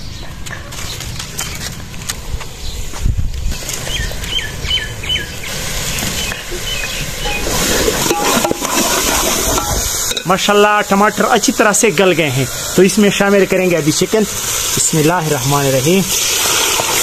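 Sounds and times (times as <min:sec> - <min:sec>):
birds chirping: 0:02.6 - 0:08.4
sauce sizzling in a pot: 0:04.3 - 0:17.0
steel ladle stirring pot: 0:07.2 - 0:10.5.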